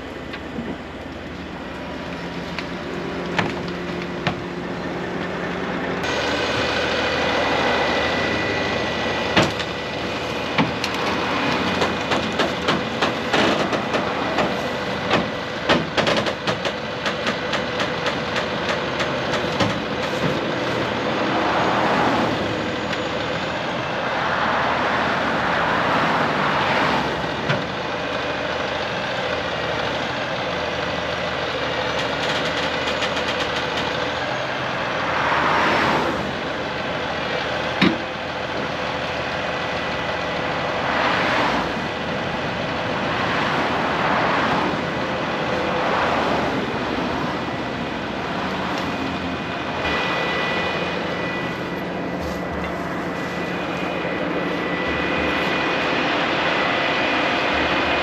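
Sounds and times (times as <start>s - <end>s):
rushing noise: 0.0s - 27.8s, 38.8s - 58.0s
diesel truck engine idling: 0.0s - 58.0s.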